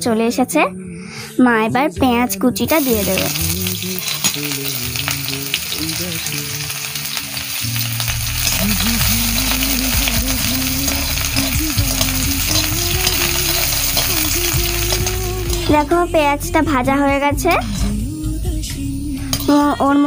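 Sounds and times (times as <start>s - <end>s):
onions sizzling in hot oil: 2.7s - 19.9s
metal spatula scraping pan: 19.2s - 19.8s.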